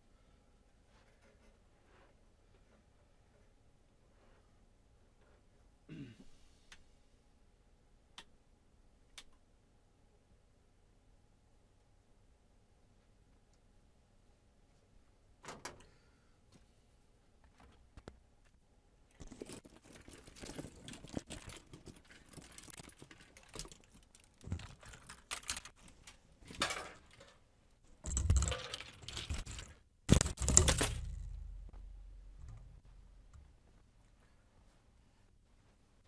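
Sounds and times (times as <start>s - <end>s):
handling clicks rattles and rustles: 19.2s - 27.4s, 28.0s - 32.8s
low rumble: 30.1s - 33.6s.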